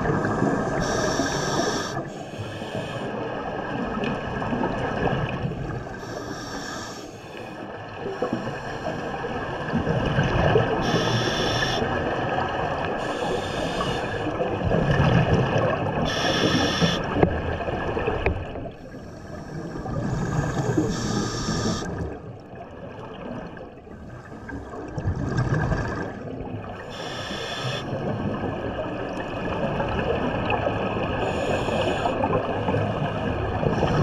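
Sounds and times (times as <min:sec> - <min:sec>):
regulator breathing hiss: 0:00.7 - 0:03.2, 0:06.0 - 0:07.6, 0:10.8 - 0:11.9, 0:13.0 - 0:14.3, 0:16.1 - 0:17.1, 0:20.2 - 0:21.9, 0:26.9 - 0:27.9, 0:31.2 - 0:32.2
exhaled bubbles burbling: 0:09.2 - 0:18.7, 0:24.8 - 0:34.0.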